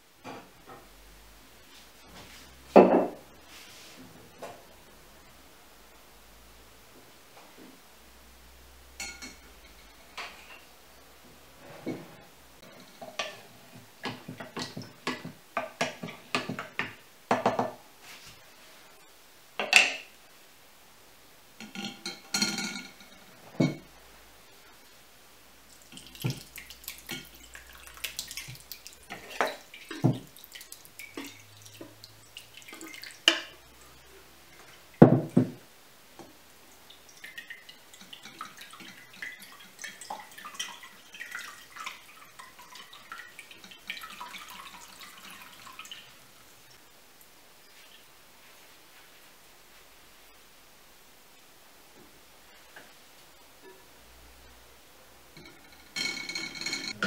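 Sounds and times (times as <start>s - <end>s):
juice trickling and dripping: 25.6s - 35.5s, 36.7s - 48.1s
liquid pouring and splashing: 25.7s - 35.6s, 36.8s - 46.8s.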